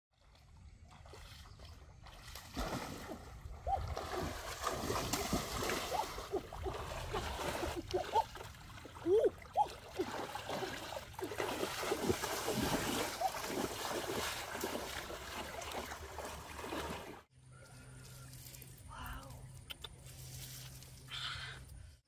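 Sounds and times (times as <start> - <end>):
water splashing and sloshing: 0.1 - 17.3.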